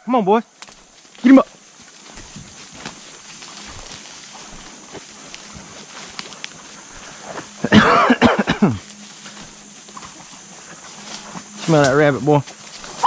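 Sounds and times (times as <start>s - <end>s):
faint rustling of brush: 0.5s - 13.0s.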